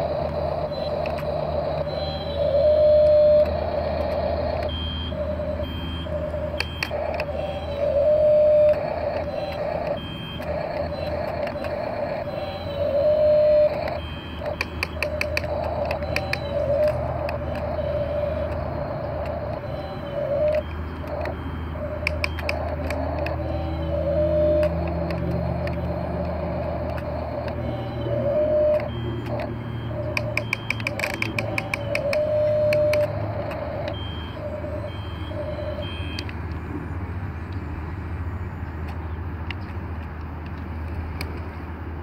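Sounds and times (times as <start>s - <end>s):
toy excavator motors whining: 0.0s - 37.8s
rapid clicking: 6.2s - 23.4s, 24.0s - 34.0s.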